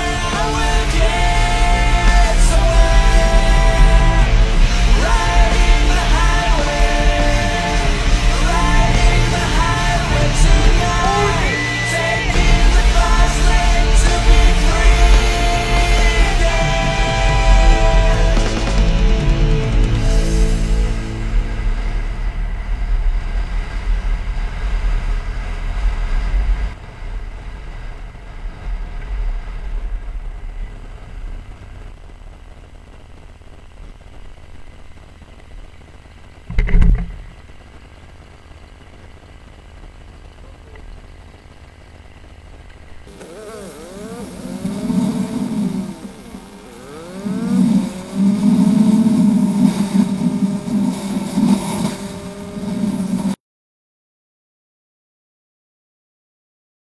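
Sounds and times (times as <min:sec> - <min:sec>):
motorcycle engine running: 0:00.0 - 0:53.4
wind rushing over microphone: 0:44.1 - 0:53.4.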